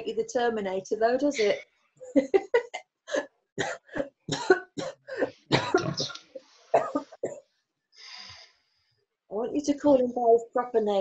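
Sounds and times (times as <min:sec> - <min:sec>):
woman coughing: 0:02.3 - 0:06.2, 0:06.8 - 0:07.4.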